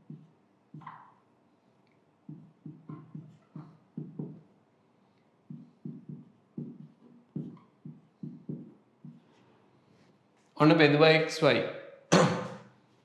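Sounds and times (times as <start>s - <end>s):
marker squeaking on whiteboard: 0.1s - 1.2s, 2.3s - 4.5s, 5.5s - 9.4s.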